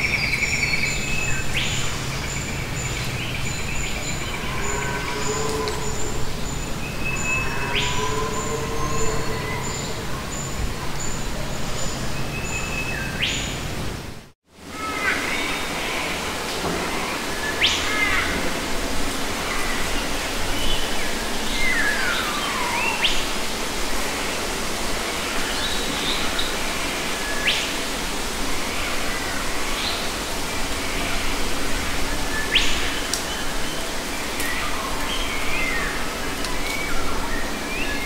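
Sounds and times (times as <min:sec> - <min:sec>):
wild birds chirping: 0:00.0 - 0:13.6
steady background hiss: 0:00.0 - 0:38.0.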